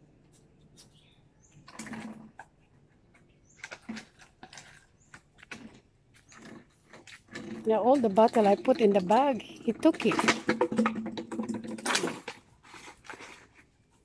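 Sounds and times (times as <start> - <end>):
plastic bottle crinkling and knocking: 1.6 - 14.0
bottle clattering on concrete: 5.5 - 13.3.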